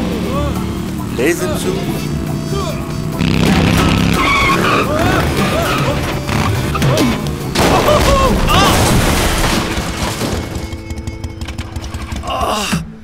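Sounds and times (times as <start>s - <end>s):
background music: 0.0s - 13.0s
motorbike engine: 0.0s - 13.0s
rider crying out: 0.1s - 8.9s, 11.2s - 13.0s
loud crash into bins and boxes: 7.5s - 11.0s.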